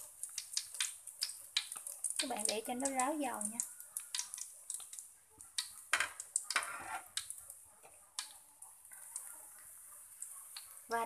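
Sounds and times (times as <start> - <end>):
hot oil crackling and popping: 0.0 - 11.0
metal spatula scraping pan: 6.6 - 7.1.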